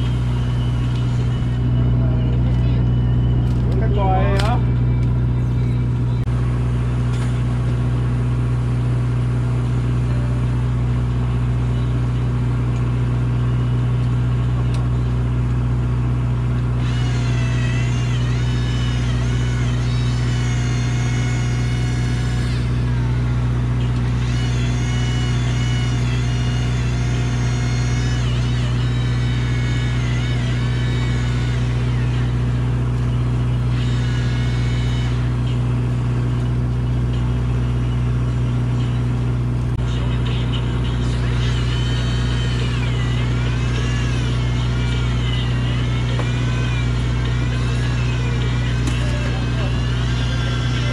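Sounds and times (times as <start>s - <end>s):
electric fishing reel whine: 0.0s - 6.2s, 15.1s - 38.8s, 41.1s - 50.9s
boat engine running: 0.0s - 50.9s.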